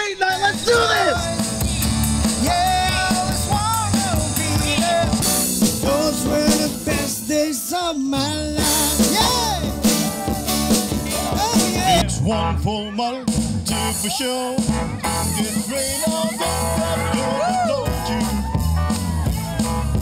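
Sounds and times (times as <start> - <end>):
electronic drum kit: 0.0 - 7.6, 8.2 - 12.1, 13.3 - 20.0
strummed acoustic guitars: 0.3 - 20.0
man singing into a microphone: 2.4 - 9.8, 11.1 - 18.4.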